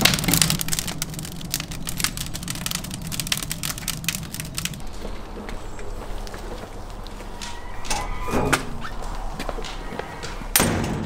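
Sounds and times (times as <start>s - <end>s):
rumbling rattle: 0.0s - 11.0s
metal door banging shut: 10.5s - 11.0s.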